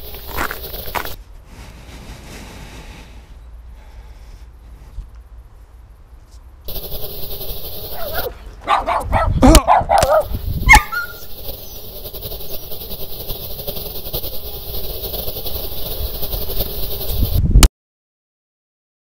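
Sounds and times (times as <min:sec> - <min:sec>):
steady rustling hiss: 0:00.0 - 0:08.6, 0:10.2 - 0:17.5
whining yelping calls: 0:07.2 - 0:13.0.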